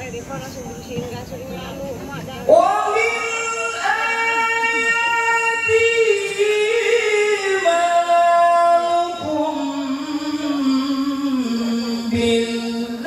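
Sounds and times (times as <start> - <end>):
man chanting into a microphone: 2.5 - 13.0.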